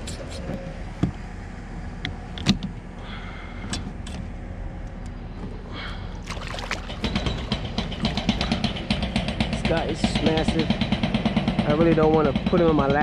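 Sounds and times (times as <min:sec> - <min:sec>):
steady low rumble: 0:00.0 - 0:11.7
fish splashing and thrashing: 0:06.1 - 0:09.2
sharp knocks: 0:06.6 - 0:09.7.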